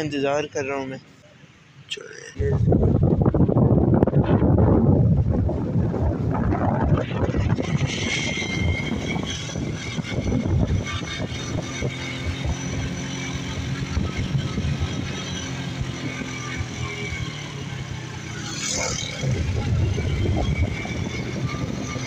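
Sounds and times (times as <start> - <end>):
wind buffeting microphone: 2.4 - 22.0
small motorcycle engine running: 7.1 - 22.0.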